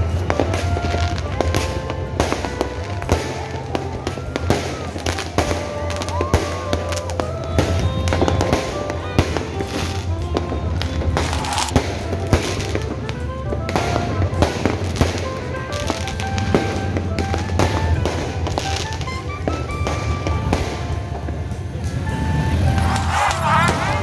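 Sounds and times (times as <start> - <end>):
crowd: 0.0 - 24.0
fireworks bangs and crackles: 0.0 - 24.0
held and gliding tones: 6.9 - 13.5, 22.0 - 24.0.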